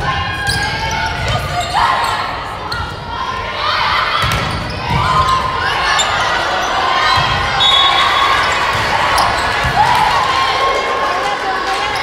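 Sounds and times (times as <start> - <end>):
players shouting: 0.0 - 12.0
sneakers squeaking: 0.2 - 3.1, 4.1 - 10.2.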